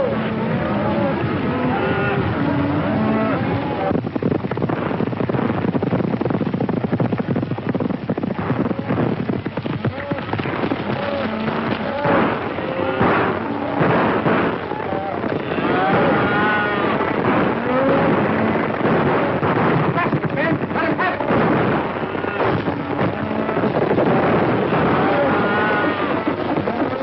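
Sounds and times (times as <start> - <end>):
rapid gunshots: 8.3 - 27.0
loud calls: 9.9 - 27.0.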